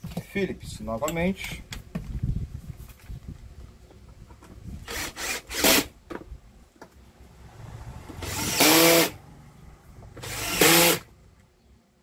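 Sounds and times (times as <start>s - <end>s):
cordless drill whining: 4.8s - 5.9s, 8.2s - 9.1s, 10.2s - 11.1s.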